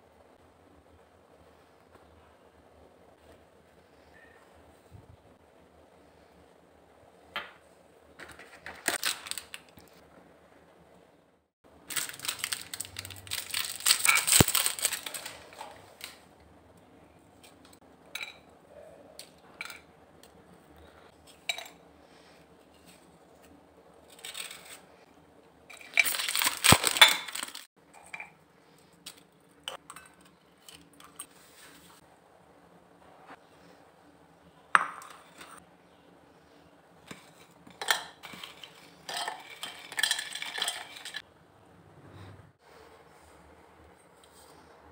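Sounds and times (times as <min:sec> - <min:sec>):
plastic packets crinkling: 0:08.2 - 0:10.0, 0:11.8 - 0:16.2, 0:24.1 - 0:24.8, 0:25.8 - 0:27.7.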